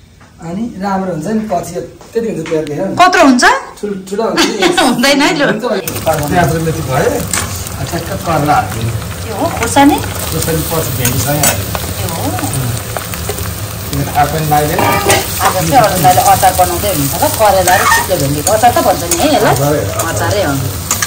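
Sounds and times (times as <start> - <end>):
vegetables sizzling in hot oil: 4.4 - 21.0
ladle scraping metal pan: 14.7 - 15.6.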